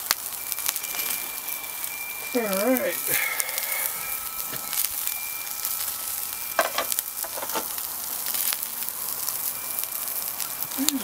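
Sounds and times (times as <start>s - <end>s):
meat sizzling on grill: 0.0s - 11.0s
cookware clanking on metal: 6.6s - 7.7s.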